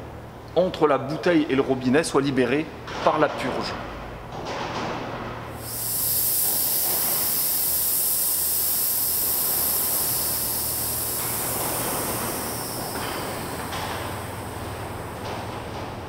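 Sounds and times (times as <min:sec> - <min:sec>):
oxygen venting hiss: 0:05.6 - 0:16.0.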